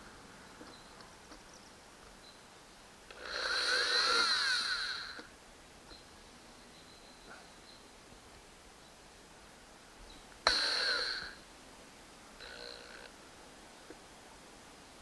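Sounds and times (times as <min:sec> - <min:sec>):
cordless drill whining: 0:03.1 - 0:05.3, 0:10.5 - 0:11.4.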